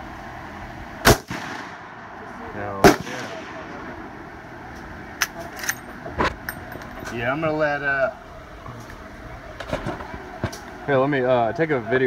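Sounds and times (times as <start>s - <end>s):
loud rifle shot: 1.0s - 2.0s, 2.8s - 3.8s
metallic clicks of rifle lever: 5.2s - 5.9s.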